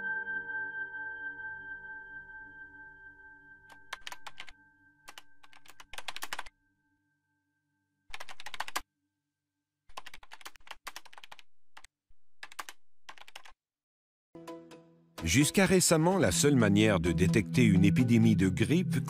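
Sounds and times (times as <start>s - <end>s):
computer keyboard typing: 3.7s - 4.5s, 5.1s - 6.5s, 8.1s - 8.8s, 9.9s - 13.6s.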